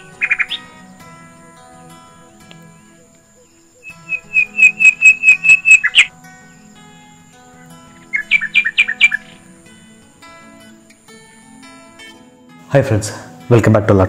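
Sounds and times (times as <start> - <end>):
bird calling rapid notes: 0.0 - 0.7, 3.8 - 6.1, 8.1 - 9.4
faint background music: 0.0 - 14.0.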